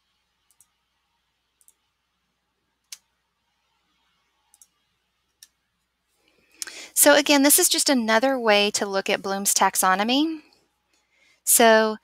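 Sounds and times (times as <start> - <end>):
faint computer mouse clicks: 0.5 - 0.8, 1.6 - 1.8, 4.5 - 4.8.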